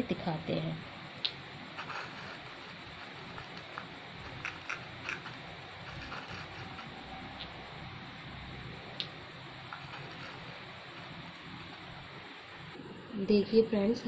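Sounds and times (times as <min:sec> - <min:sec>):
steady background hiss: 0:00.0 - 0:14.0
paintbrush scratching on clay: 0:01.8 - 0:07.0, 0:09.7 - 0:11.9.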